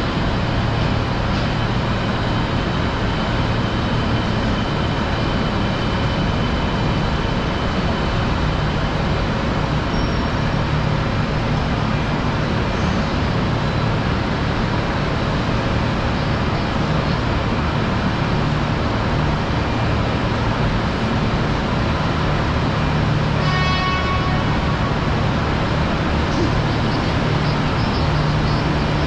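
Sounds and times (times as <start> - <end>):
engines rumbling: 0.0 - 29.0
faint high whines: 24.0 - 29.0.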